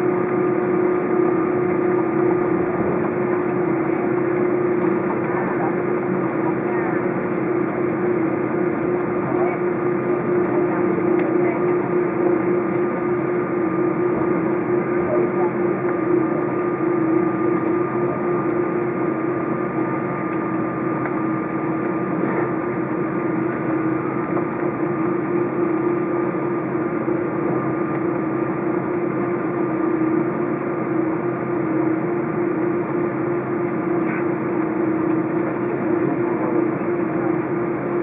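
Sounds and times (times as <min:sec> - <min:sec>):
airplane engines droning hum: 0:00.0 - 0:38.0.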